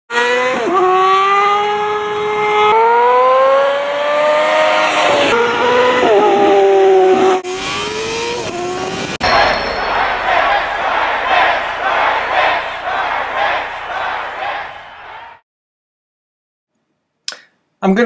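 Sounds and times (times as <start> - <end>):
motorcycle engine revving: 0.1 - 9.2.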